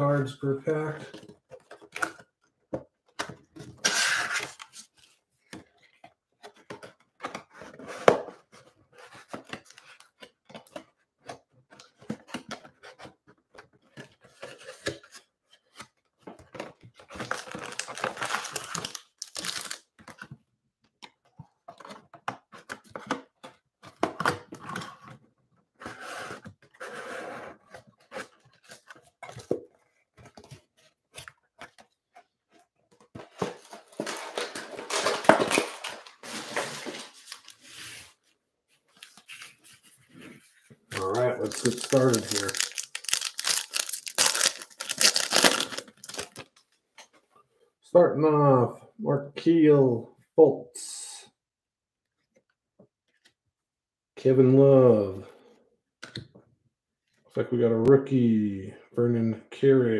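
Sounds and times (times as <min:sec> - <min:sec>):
cardboard tearing and rustling: 0:17.1 - 0:19.8, 0:33.4 - 0:38.0, 0:40.9 - 0:46.5
foil packs crinkling: 0:17.2 - 0:19.8, 0:33.9 - 0:37.7, 0:40.9 - 0:46.5.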